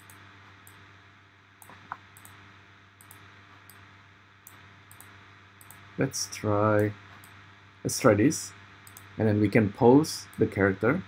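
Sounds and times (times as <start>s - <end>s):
computer mouse clicks: 0.0s - 0.8s, 1.6s - 2.4s, 3.0s - 3.8s, 4.4s - 5.8s, 8.8s - 9.1s.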